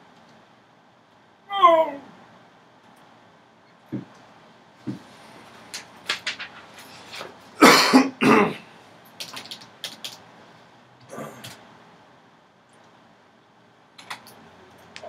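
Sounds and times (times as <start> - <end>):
man coughing: 7.6 - 8.7.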